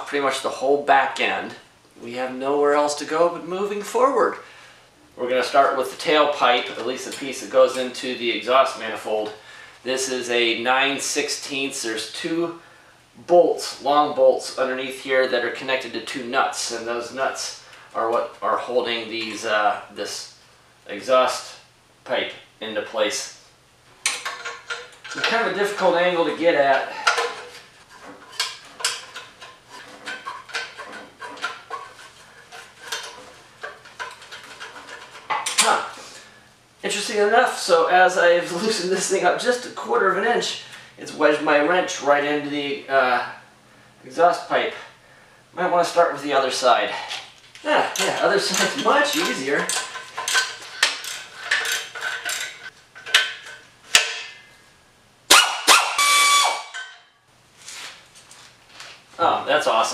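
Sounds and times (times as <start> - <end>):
wrench clinking on bolts: 24.0 - 25.4, 47.9 - 54.4
wrench scraping and clinking metal: 24.0 - 35.7, 47.9 - 54.4, 56.6 - 57.1.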